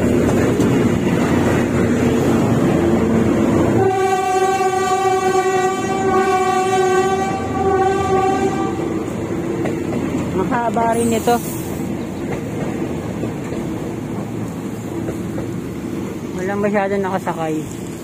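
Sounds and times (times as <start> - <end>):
train engine and wheels rumbling: 0.0 - 18.0
train horn long blast: 3.8 - 8.9.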